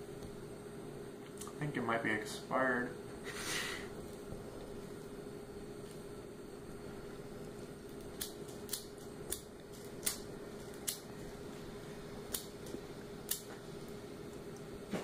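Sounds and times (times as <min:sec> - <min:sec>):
lighter clicking: 0:08.0 - 0:11.1, 0:12.3 - 0:13.6.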